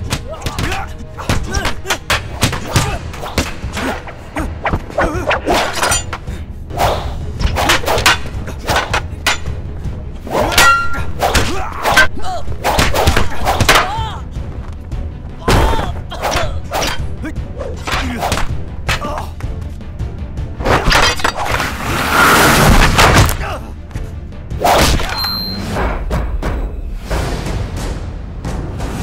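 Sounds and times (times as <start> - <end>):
fighters shouting and grunting: 0.0 - 19.7, 23.1 - 26.9
film score: 0.0 - 29.0
wooden staffs clacking: 4.6 - 6.3, 7.4 - 9.7, 10.3 - 13.9, 17.8 - 19.4
metallic clang: 7.4 - 9.6.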